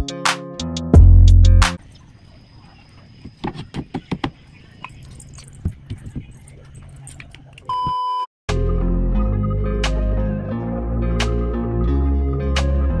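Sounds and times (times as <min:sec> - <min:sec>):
wooden knocks and taps: 0:03.2 - 0:04.4
loud background music: 0:08.5 - 0:13.0.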